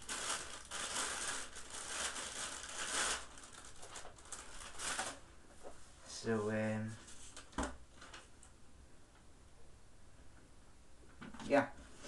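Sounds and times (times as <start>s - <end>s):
plastic bag crinkling: 0.0s - 5.2s.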